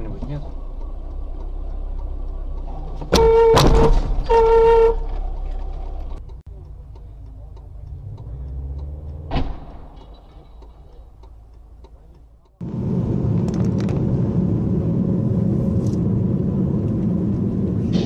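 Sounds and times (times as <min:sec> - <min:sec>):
car rumbling in traffic: 0:00.0 - 0:18.0
car horn honking: 0:03.1 - 0:05.3.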